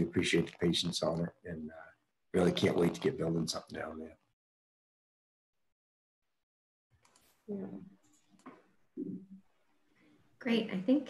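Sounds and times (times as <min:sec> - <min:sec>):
person speaking: 0:00.0 - 0:04.1.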